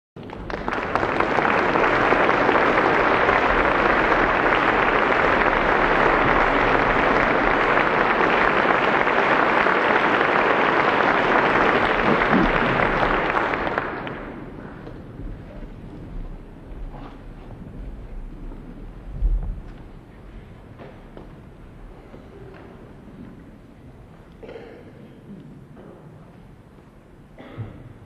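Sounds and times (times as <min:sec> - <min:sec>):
audience applauding: 0:00.2 - 0:15.9.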